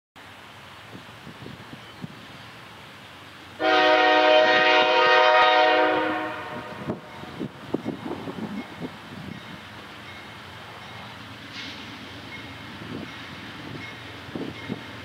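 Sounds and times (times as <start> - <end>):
train rumbling: 0.2 - 15.0
locomotive air horn blast: 3.6 - 7.3
train knocks: 6.6 - 15.0.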